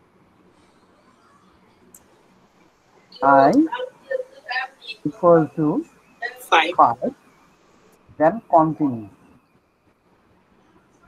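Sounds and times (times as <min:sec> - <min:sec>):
faint hiss: 0:00.0 - 0:11.0
low hum: 0:00.0 - 0:11.0.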